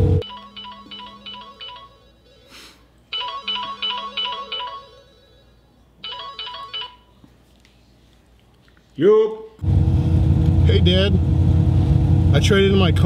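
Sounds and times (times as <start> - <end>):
phone ringtone melody: 0.2 - 7.2.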